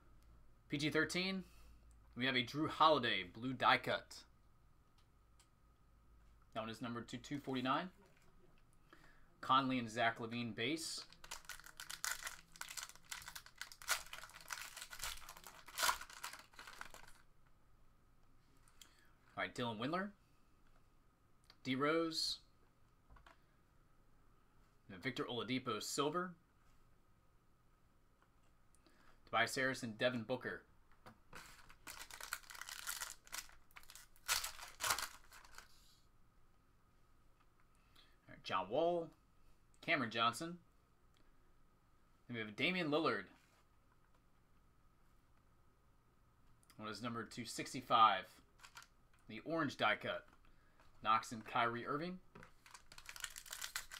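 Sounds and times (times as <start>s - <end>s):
foil wrapper crinkling and tearing: 11.0s - 17.2s, 31.4s - 35.7s, 48.6s - 48.9s, 52.6s - 53.9s.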